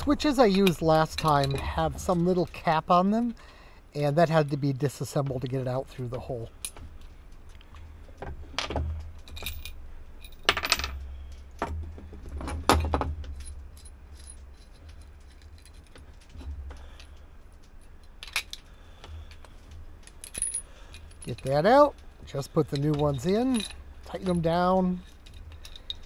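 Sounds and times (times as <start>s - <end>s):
metal tools clattering on wood: 0.0s - 2.6s, 8.1s - 18.7s, 19.3s - 26.0s
steady low hum: 0.0s - 26.0s.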